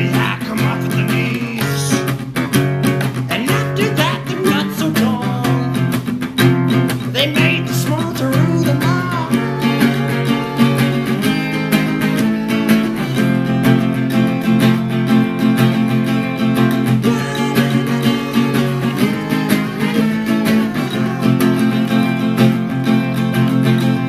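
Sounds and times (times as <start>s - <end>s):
strummed acoustic guitar: 0.0s - 24.0s.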